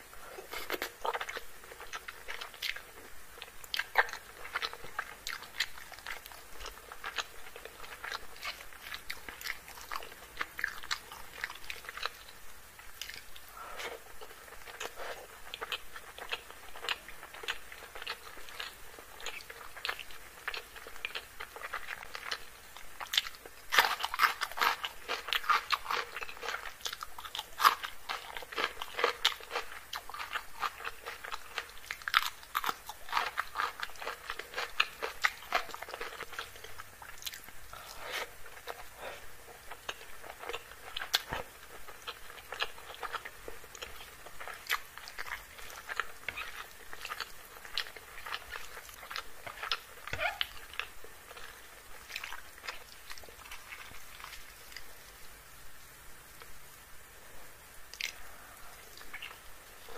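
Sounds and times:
crunchy chewing: 0.2s - 55.2s, 57.9s - 59.9s.

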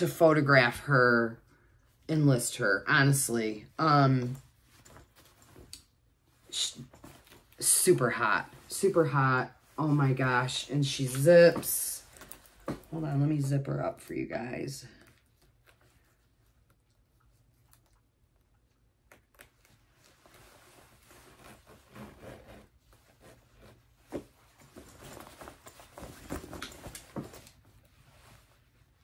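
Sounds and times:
leather jacket rustling: 4.5s - 5.7s, 6.4s - 13.0s, 19.8s - 29.0s.

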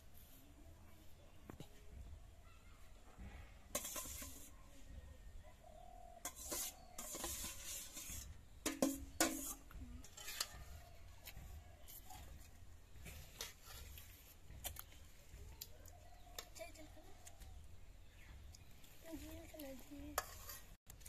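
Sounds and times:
rice scraped from metal bowl: 3.7s - 4.6s, 6.2s - 11.0s, 13.0s - 14.4s, 19.8s - 20.8s.

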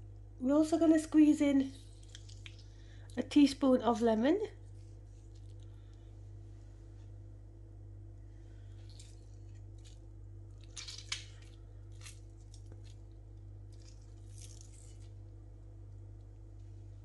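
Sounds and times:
steady low hum: 0.0s - 17.0s
lemon squeezing squishes: 1.8s - 3.2s, 8.6s - 15.4s.

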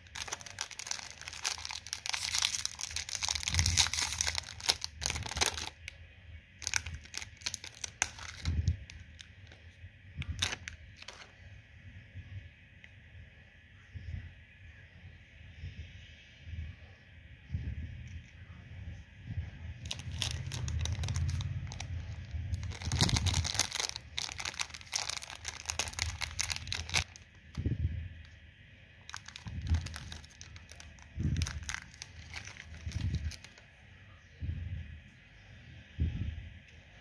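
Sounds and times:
plastic wrapper crinkling and tearing: 0.0s - 6.0s, 6.6s - 9.6s, 10.2s - 11.4s, 19.8s - 27.7s, 29.1s - 33.7s.

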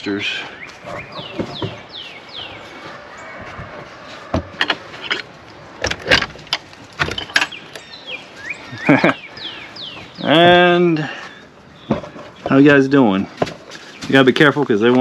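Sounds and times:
chicks peeping: 7.5s - 12.7s.

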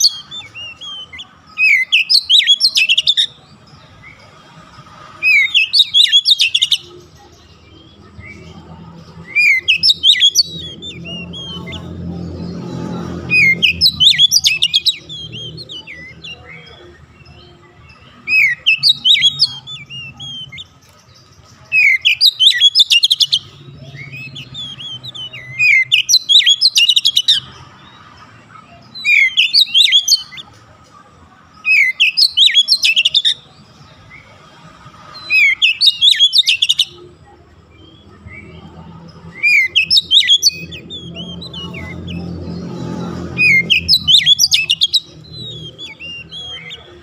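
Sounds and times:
songbird whistling and chattering: 0.0s - 4.3s, 5.1s - 30.6s, 31.6s - 34.4s, 35.0s - 37.1s, 37.7s - 47.0s.

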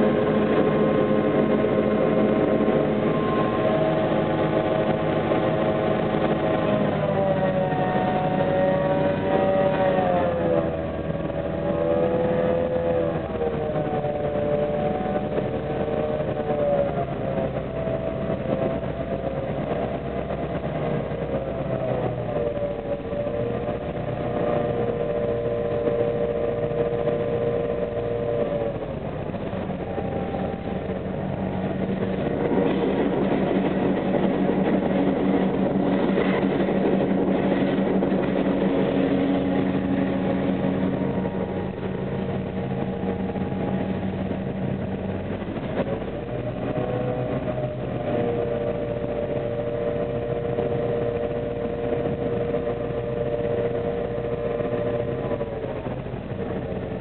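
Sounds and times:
diesel locomotive engine: 0.0s - 57.0s
running gear whine: 0.0s - 57.0s.

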